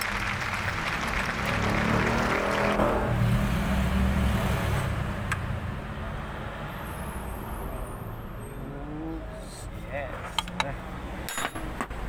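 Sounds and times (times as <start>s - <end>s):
diesel engine rumbling: 0.0s - 6.2s.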